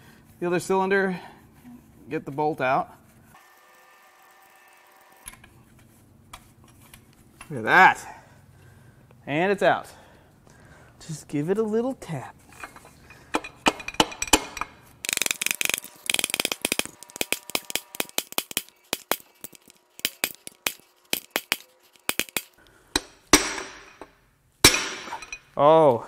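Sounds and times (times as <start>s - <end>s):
hand tools tapping on metal: 12.6s - 25.5s
ratchet clicking: 13.8s - 23.1s.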